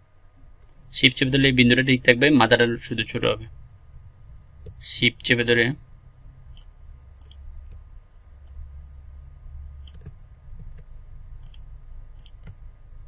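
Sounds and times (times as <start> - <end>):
low steady hum: 0.0 - 13.0
mouse and keyboard clicks: 6.5 - 7.8, 9.8 - 11.6, 12.2 - 12.6.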